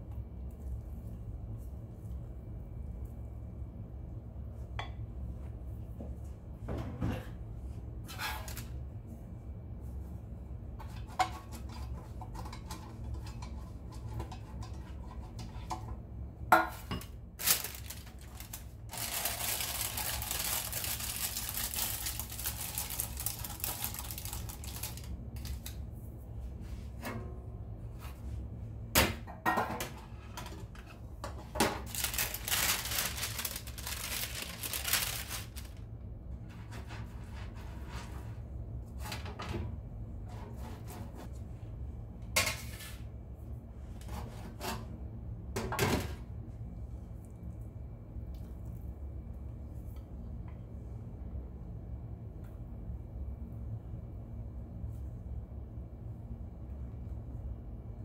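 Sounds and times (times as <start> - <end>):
parchment paper rustling: 17.4 - 25.8, 31.8 - 35.8.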